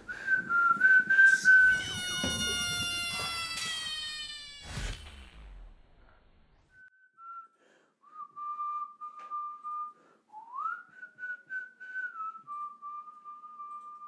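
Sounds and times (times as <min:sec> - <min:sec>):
person whistling a slow tune: 0:00.1 - 0:01.8, 0:06.7 - 0:14.0.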